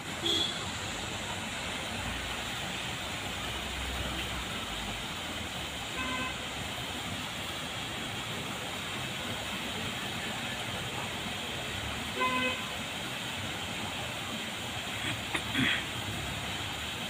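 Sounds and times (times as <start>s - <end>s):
road traffic noise: 0.0s - 17.0s
vehicle horn toot: 0.2s - 0.6s, 6.0s - 6.4s, 12.2s - 12.6s.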